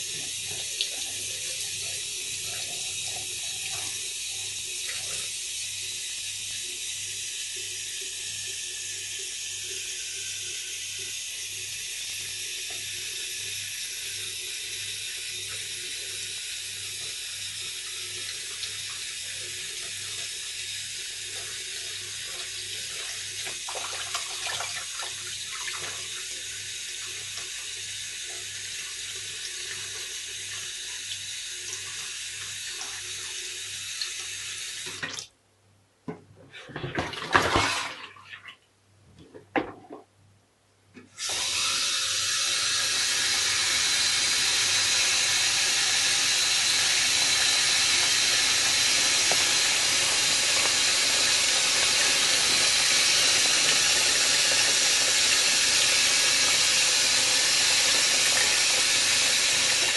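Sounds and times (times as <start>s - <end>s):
tap water splashing into sink: 21.3s - 26.2s, 34.0s - 35.3s, 36.1s - 38.6s, 46.6s - 59.9s.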